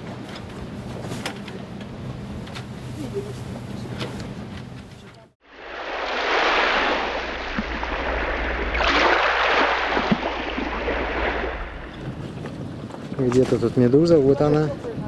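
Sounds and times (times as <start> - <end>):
sea water washing: 5.4 - 15.0
steady low rumble: 5.5 - 13.3.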